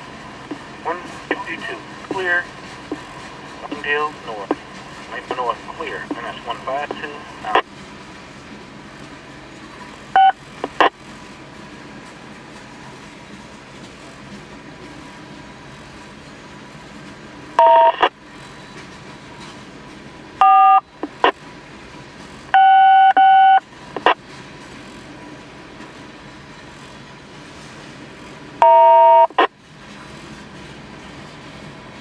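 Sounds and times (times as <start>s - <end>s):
radio touch-tone bursts: 5.2s - 7.7s, 10.2s - 10.9s, 17.6s - 18.1s, 20.4s - 21.4s, 22.6s - 24.2s, 28.6s - 29.5s.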